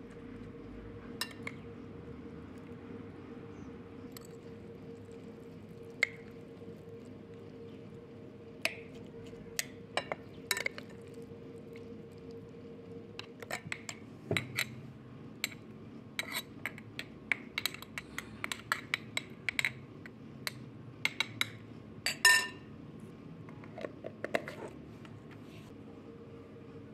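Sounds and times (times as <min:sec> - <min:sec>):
spoon clinking against glass: 0:22.1 - 0:22.6.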